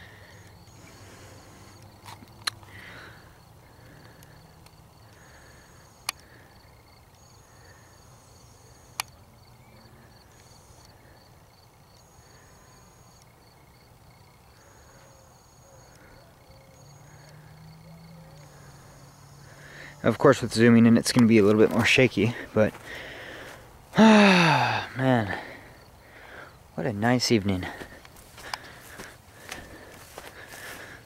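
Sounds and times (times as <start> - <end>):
crickets chirping: 0.0 - 31.0
insects trilling: 0.0 - 31.0
sharp clicks: 8.9 - 9.2.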